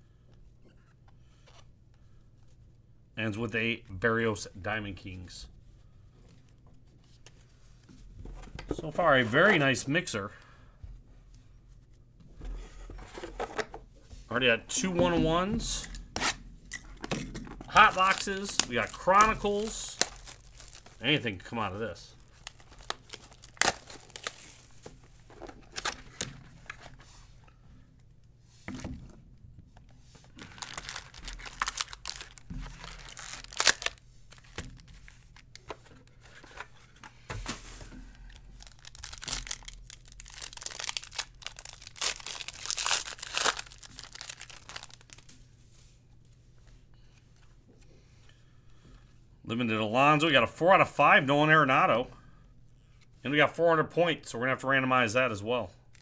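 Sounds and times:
foil packs ripping and crinkling: 0:17.6 - 0:21.2, 0:22.2 - 0:24.8, 0:30.4 - 0:35.0, 0:38.2 - 0:45.2.

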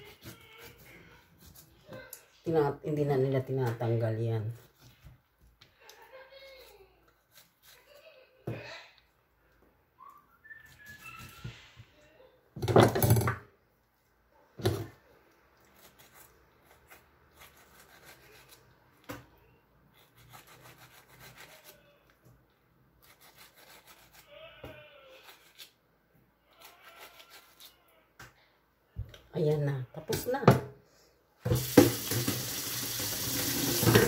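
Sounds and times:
knife scraping pineapple rind: 0:06.5 - 0:08.1, 0:15.6 - 0:18.8, 0:19.9 - 0:22.1, 0:23.0 - 0:24.4, 0:25.0 - 0:25.8, 0:26.5 - 0:27.8.

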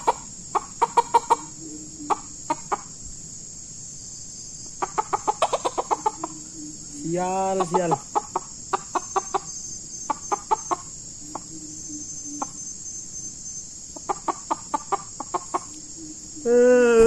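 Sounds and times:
rooster clucking: 0:00.0 - 0:03.0, 0:04.8 - 0:09.5, 0:10.1 - 0:11.5, 0:13.9 - 0:15.8
high-pitched insect drone: 0:00.0 - 0:17.0.

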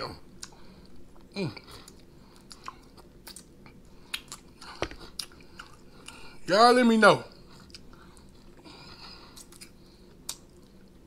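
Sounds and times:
chewing with wet mouth clicks: 0:00.4 - 0:06.2, 0:07.5 - 0:08.6, 0:09.3 - 0:11.0.

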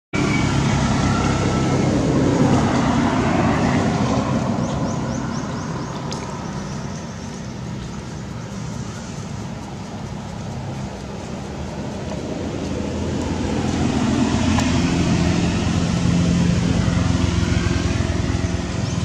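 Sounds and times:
rushing noise: 0:00.2 - 0:19.0
vehicle engine humming: 0:00.2 - 0:19.0.

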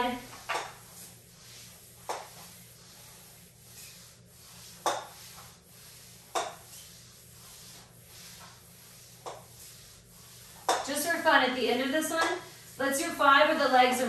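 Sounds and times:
faint sliding rub: 0:00.0 - 0:13.2.

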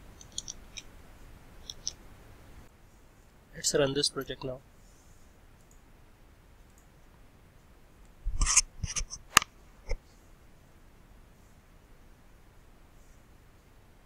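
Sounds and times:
computer mouse clicking: 0:00.2 - 0:00.9, 0:01.6 - 0:02.0.

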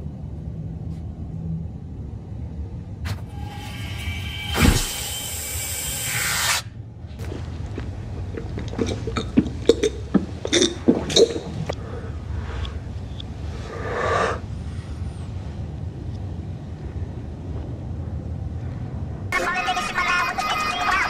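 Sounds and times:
low steady hum: 0:00.0 - 0:05.7, 0:06.7 - 0:21.0
man gulping milk: 0:07.6 - 0:11.8.

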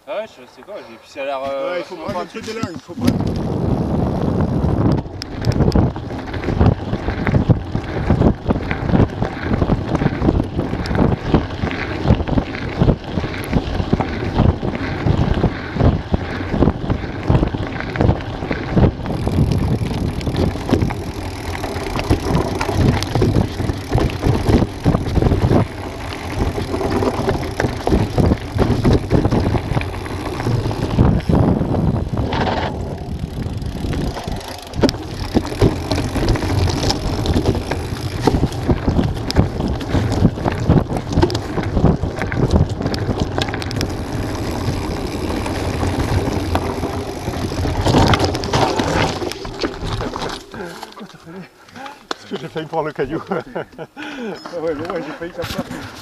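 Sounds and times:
bike rattling over bumps: 0:01.1 - 0:53.6, 0:54.5 - 0:56.0
wind on microphone: 0:02.2 - 0:50.4
tyres crunching on stones: 0:17.6 - 0:51.2.

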